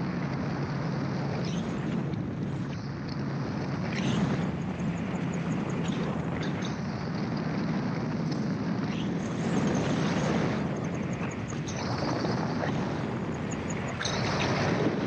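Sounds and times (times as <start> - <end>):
gyroplane engine and propeller drone: 0.0 - 15.0.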